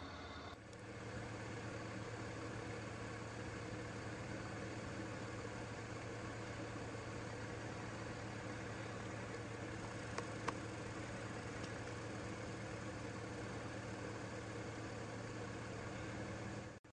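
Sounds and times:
low motor hum: 0.0 - 16.9.

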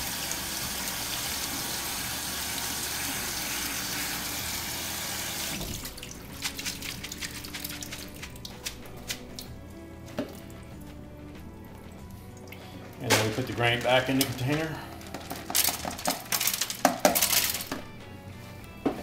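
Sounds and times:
faucet running water into sink: 0.0 - 8.7.

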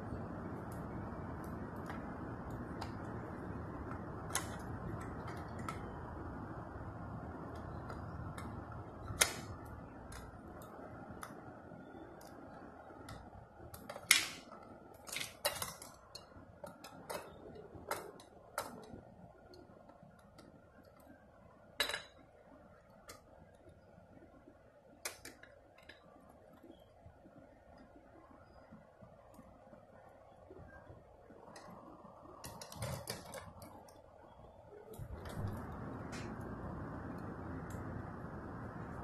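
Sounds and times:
faint hum: 0.0 - 39.0
toy truck parts clicking: 12.2 - 19.2.

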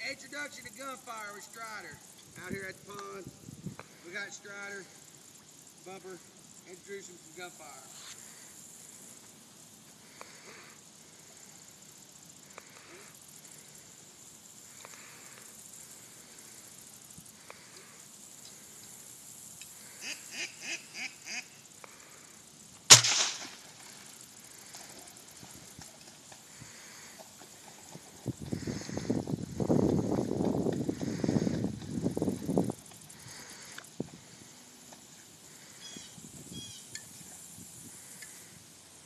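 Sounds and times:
short calls: 19.7 - 22.2, 35.5 - 37.2
distant gunshot with echo: 22.9 - 23.6.

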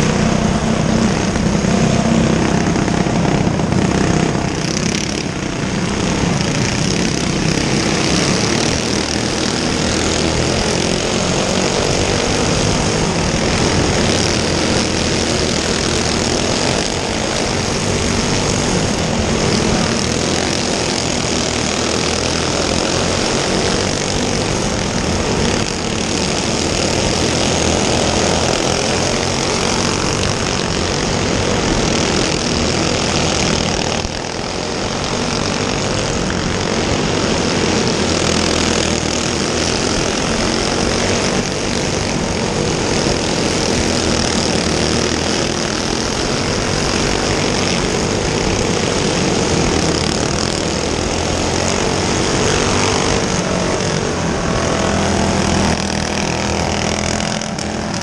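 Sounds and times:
go-kart engine at high revs: 0.0 - 58.0.

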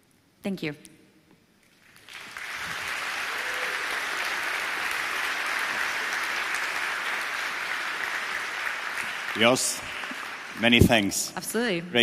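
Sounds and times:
audience applause: 1.8 - 11.3.

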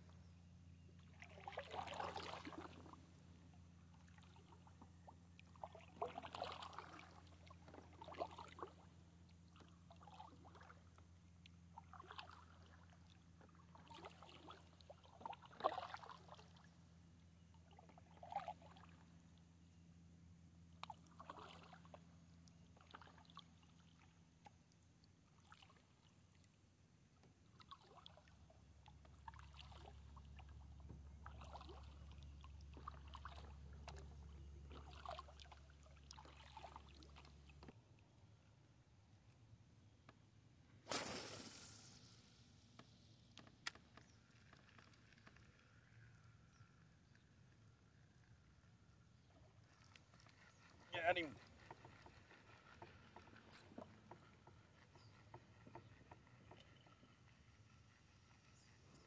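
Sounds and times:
water trickling off paddle: 0.9 - 19.2, 20.8 - 38.1, 40.9 - 47.4, 49.1 - 59.0
paddle strokes splashing: 1.1 - 3.2, 5.6 - 11.0, 11.8 - 16.8, 20.9 - 22.0, 27.6 - 28.3, 29.1 - 37.8.

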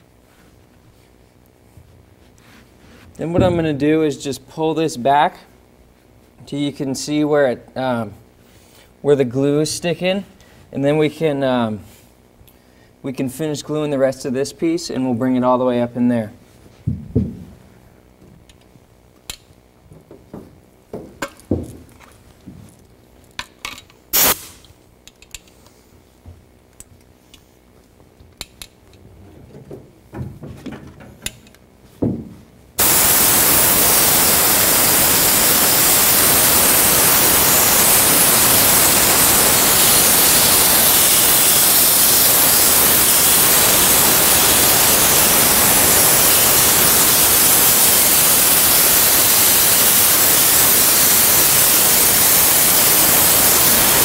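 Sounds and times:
spray gun hissing: 24.1 - 24.6, 32.8 - 54.0.

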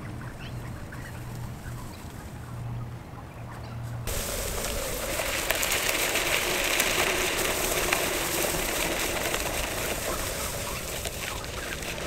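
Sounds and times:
board wheels rumbling over grass: 4.0 - 12.0.

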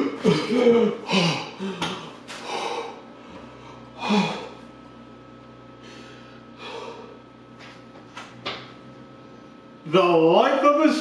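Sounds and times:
man gasping and breathing heavily: 0.2 - 3.0, 3.7 - 4.6, 5.8 - 7.2.

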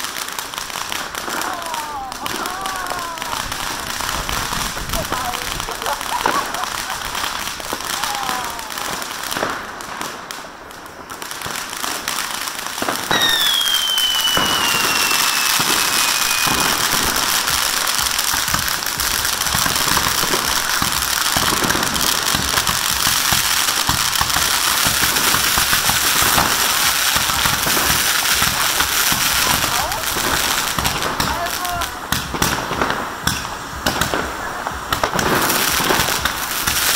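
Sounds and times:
firework fountain crackling: 0.0 - 36.9
firework whistle falling in pitch: 13.1 - 17.4.

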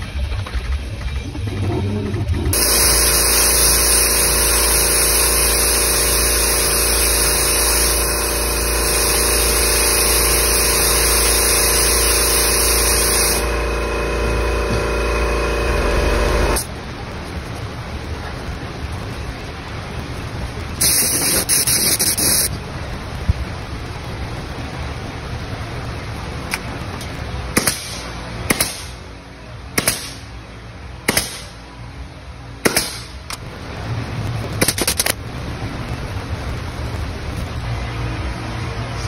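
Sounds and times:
air hiss: 2.6 - 16.7, 20.8 - 22.5.

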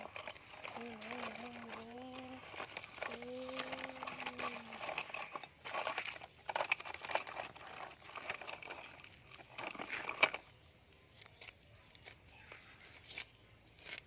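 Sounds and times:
brick pieces scraping in toy truck: 0.0 - 10.6.

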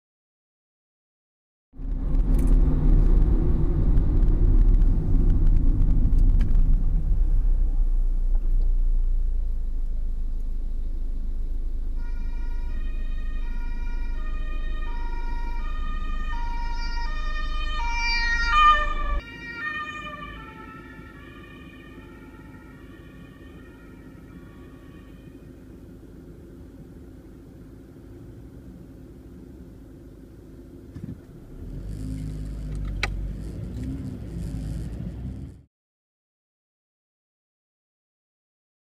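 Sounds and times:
low rumble of driving noise: 1.8 - 35.7
two-tone emergency sirens: 11.9 - 26.1.

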